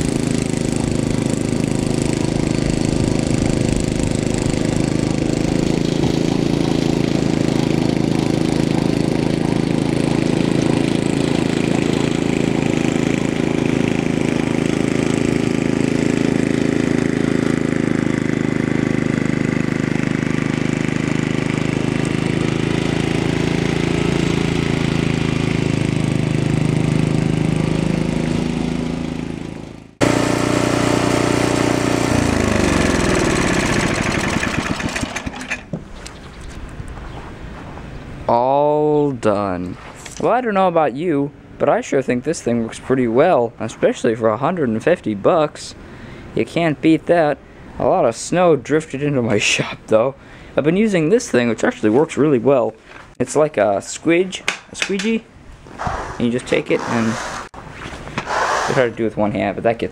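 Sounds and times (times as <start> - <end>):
snowblower engine running: 0.0 - 36.2, 55.7 - 59.2.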